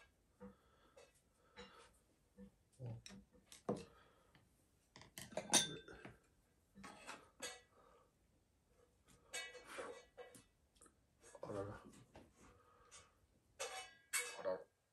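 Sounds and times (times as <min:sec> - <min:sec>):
chopsticks and bowl clinking: 0:05.0 - 0:06.0.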